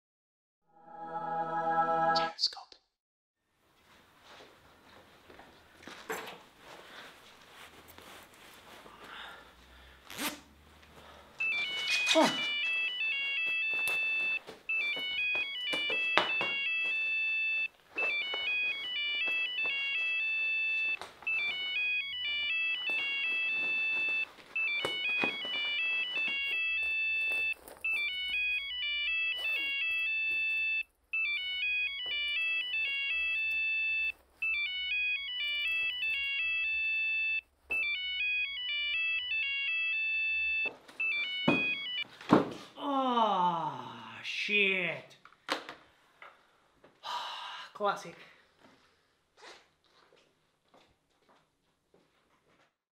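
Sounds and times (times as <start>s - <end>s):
jacket pockets rustling: 3.8s - 37.1s
mobile phone ringtone: 11.4s - 42.1s.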